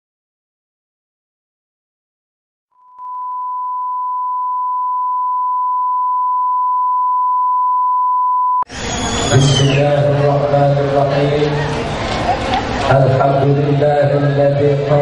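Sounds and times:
steady pure test tone: 2.8 - 11.4.

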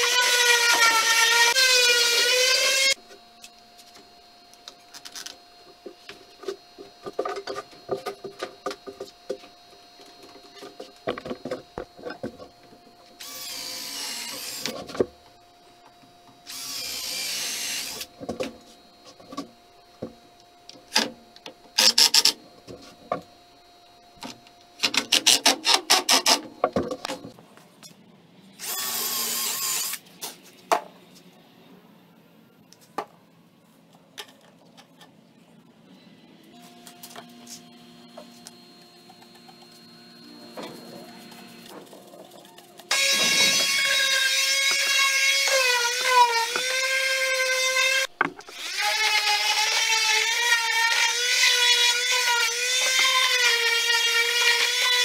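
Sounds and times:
cordless drill whirring: 13.2 - 14.7, 16.5 - 18.1, 28.6 - 30.0.

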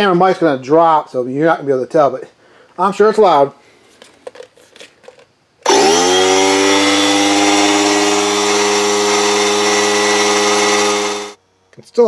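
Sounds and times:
air compressor running: 5.6 - 11.4.

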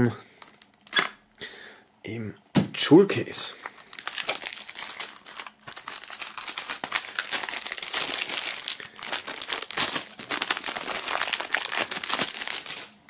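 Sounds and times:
shrink-wrap film crinkling: 0.4 - 1.1, 3.5 - 13.0.

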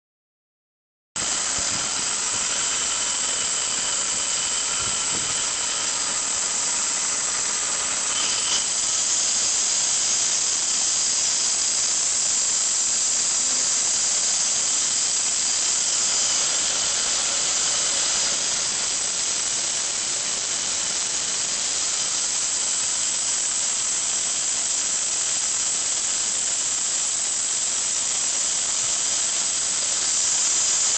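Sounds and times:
engine high-pitched squealing hiss: 1.2 - 30.9
faint whistling tones: 1.3 - 11.7.

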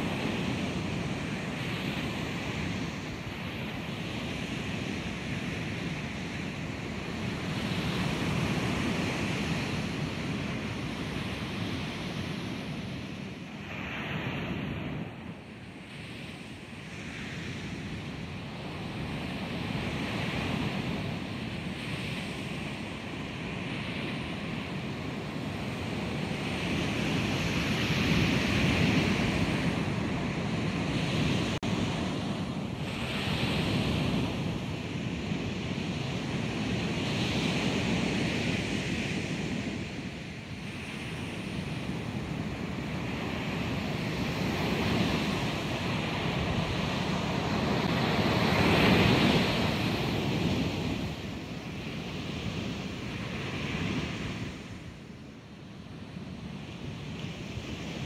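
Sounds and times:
ocean waves crashing: 43.0 - 54.7.

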